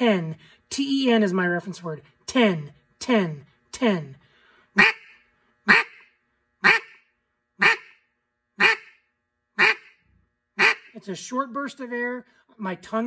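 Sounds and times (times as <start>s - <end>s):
duck call quacks: 4.8s - 10.0s, 10.6s - 11.0s.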